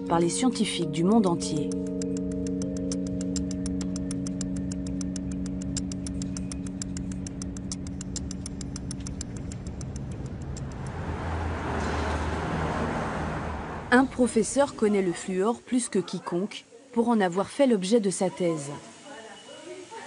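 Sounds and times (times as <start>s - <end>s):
steady ticking: 0.9s - 15.2s
low drone: 1.1s - 15.3s
rushing swell: 9.4s - 15.3s.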